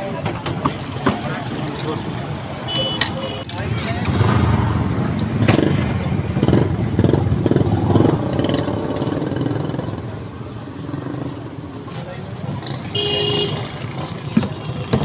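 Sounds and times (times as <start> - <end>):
street traffic: 0.0 - 15.0.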